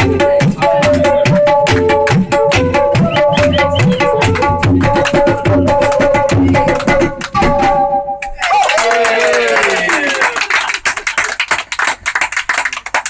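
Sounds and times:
tabla playing fast rhythm: 0.0s - 7.7s.

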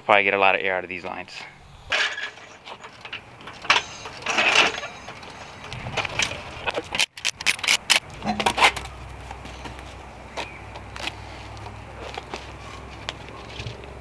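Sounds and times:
floor jack being worked: 1.9s - 8.8s
lug nuts clinking: 1.9s - 9.0s
wheel pulled from hub: 2.0s - 8.9s.

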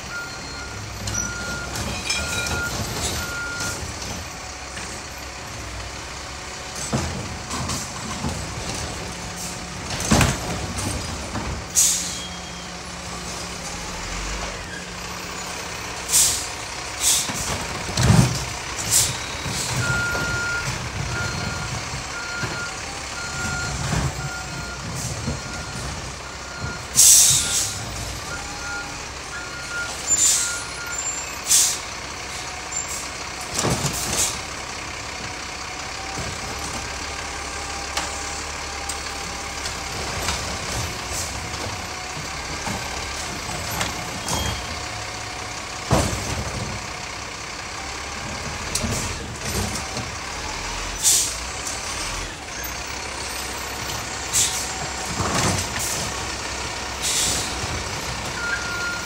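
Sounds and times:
diesel truck engine running: 0.0s - 59.0s
air brake hisses: 11.8s - 12.4s, 16.1s - 17.5s, 27.0s - 27.8s, 30.1s - 30.5s, 31.4s - 31.8s, 51.0s - 51.4s, 54.3s - 54.7s, 57.0s - 57.6s.

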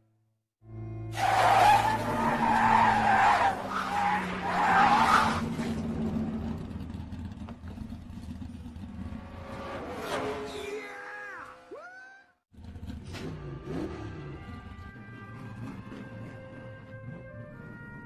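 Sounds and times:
tires screeching in a skid: 1.1s - 10.8s.

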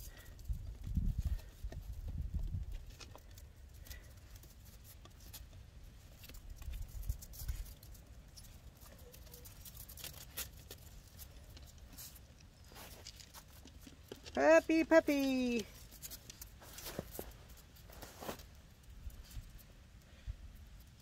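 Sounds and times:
puppy claws clicking on wood: 0.1s - 14.4s.

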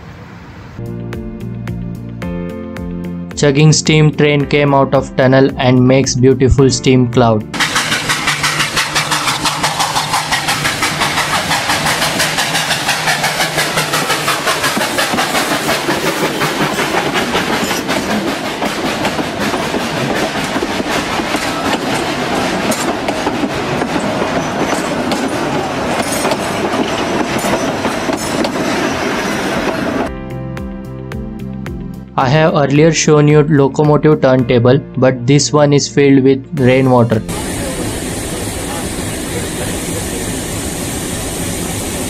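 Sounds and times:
steam locomotive chuffing: 7.5s - 30.1s, 37.2s - 42.0s
coaches rolling on rails: 7.6s - 30.1s.

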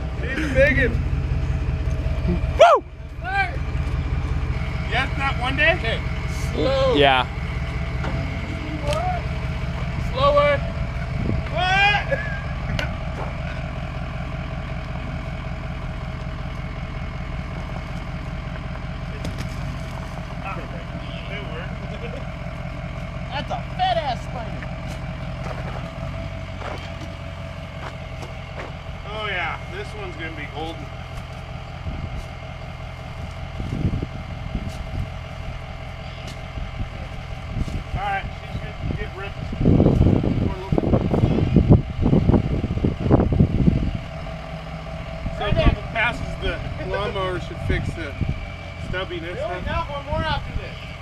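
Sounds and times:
truck engine running: 0.0s - 51.0s
wind noise on microphone: 11.1s - 11.5s, 33.5s - 35.2s, 38.7s - 44.1s.

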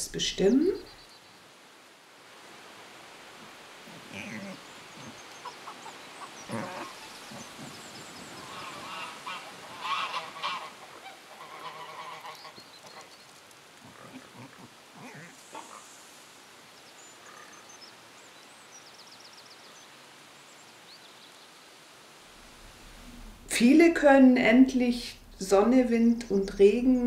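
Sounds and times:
geese honking: 4.2s - 13.1s.

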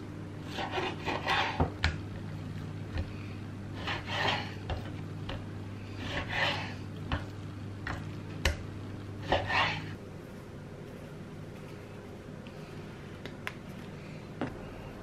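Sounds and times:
low steady hum: 0.0s - 15.0s
knife scraping through meat: 0.5s - 1.7s, 3.8s - 4.6s, 6.0s - 6.8s, 9.2s - 10.0s.

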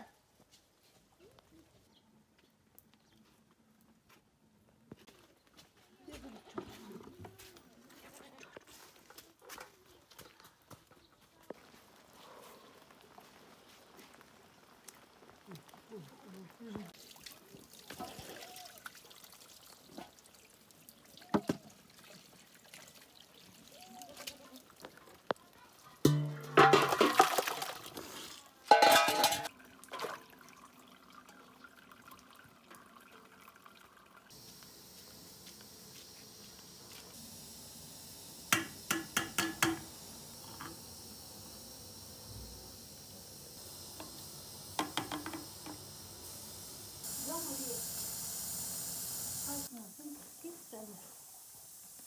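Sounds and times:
water pouring into steel bowl: 17.0s - 25.5s, 26.1s - 34.3s
sharp metallic knocks: 26.1s - 26.9s, 38.5s - 39.9s
faint steady hiss: 33.7s - 52.0s.

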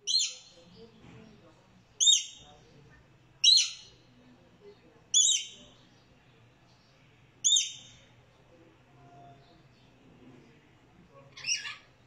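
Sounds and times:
lorikeet high-pitched calls: 0.0s - 0.6s, 2.0s - 2.4s, 3.4s - 3.9s, 5.2s - 5.6s, 7.4s - 8.0s, 11.4s - 11.9s.

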